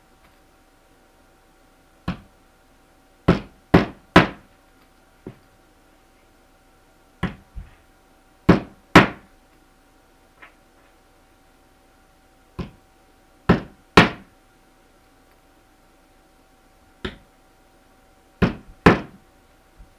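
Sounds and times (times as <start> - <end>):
hammer driving nails into wood: 3.3 - 4.4, 13.5 - 14.3, 18.4 - 19.2.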